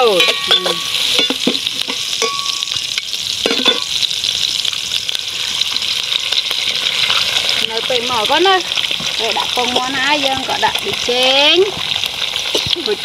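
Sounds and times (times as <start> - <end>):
metal spatula scraping a wok: 0.0 - 4.0, 6.4 - 7.7
food sizzling in hot oil: 0.0 - 13.0.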